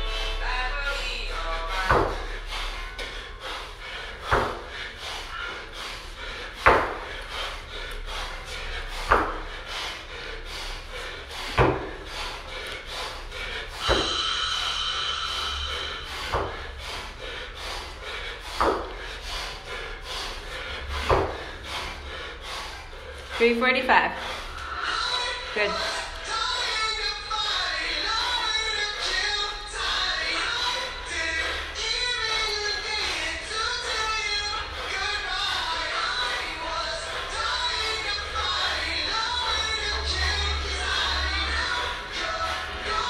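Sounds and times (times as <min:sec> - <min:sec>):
steady high tone: 0:00.0 - 0:01.7
hard breathing: 0:00.0 - 0:43.0
dumbbell thudding on rubber mat: 0:06.6 - 0:07.0, 0:13.9 - 0:14.2, 0:18.6 - 0:18.9.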